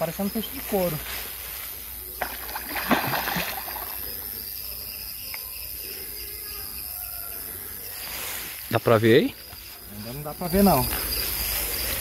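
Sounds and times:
fish thrashing and splashing: 2.2 - 4.0.

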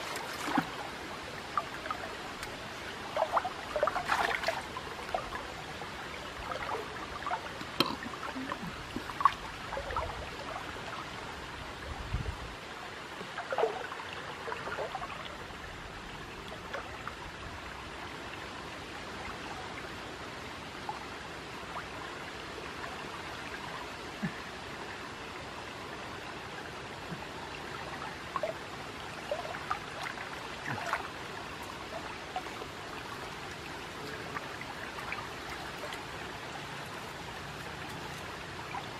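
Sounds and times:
small water splashes: 0.0 - 11.9, 12.8 - 17.4, 27.0 - 38.9
river water sloshing and trickling: 0.0 - 38.9.

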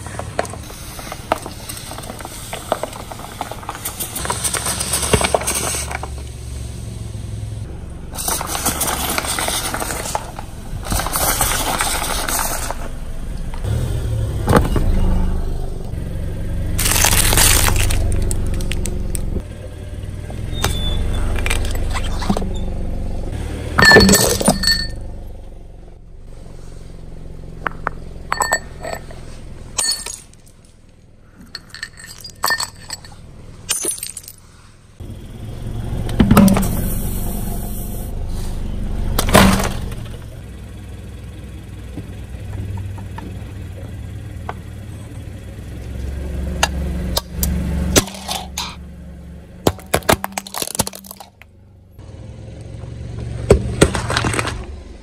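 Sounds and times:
car engine low rumble: 0.0 - 55.0
plastic packs crackling: 16.8 - 18.9
ceramic shattering: 23.8 - 25.0, 28.3 - 29.2, 29.8 - 30.4, 31.6 - 34.4.

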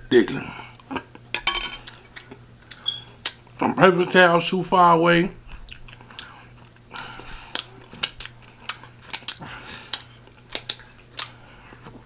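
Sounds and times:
mouth smacks and clicks eating: 1.9 - 3.4, 5.6 - 11.4.

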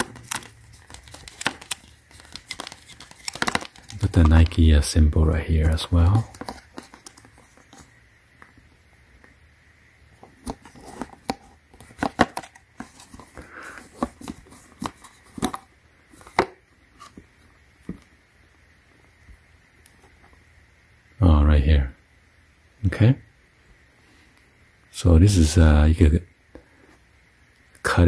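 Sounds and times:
cable rustling: 0.0 - 4.7.

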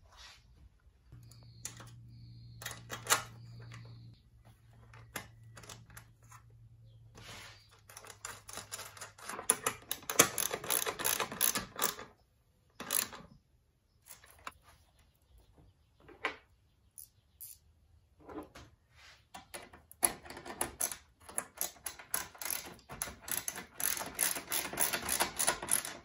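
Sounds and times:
low steady hum: 0.8 - 9.3
ratchet wrench clicking: 7.9 - 12.0, 21.6 - 26.0.

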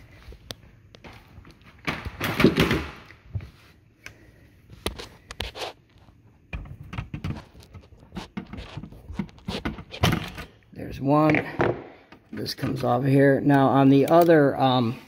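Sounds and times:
tool clicking on metal terminals: 13.5 - 14.6.

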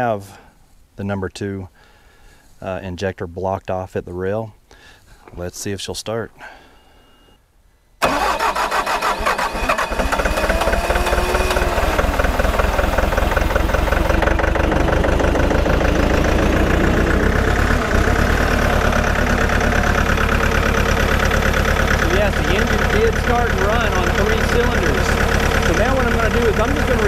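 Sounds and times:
diesel engine starting and idling: 8.0 - 27.0.

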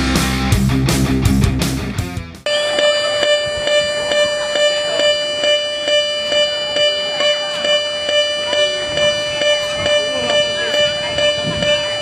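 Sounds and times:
crossing warning bell ringing: 2.5 - 12.0.

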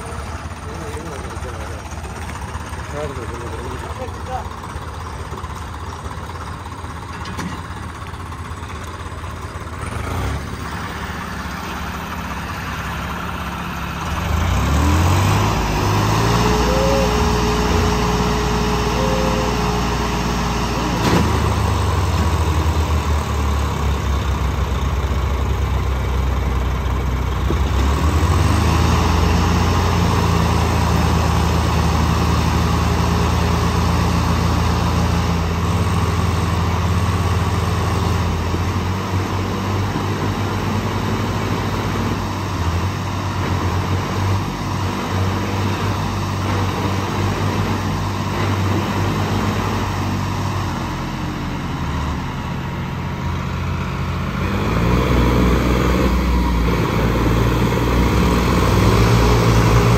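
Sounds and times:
diesel tractor engines revving: 0.0 - 59.9.

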